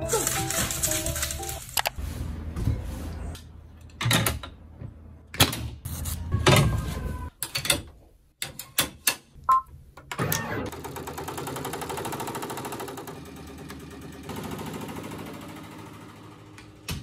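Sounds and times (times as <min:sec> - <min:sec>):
fabric rustling: 0:00.0 - 0:02.2.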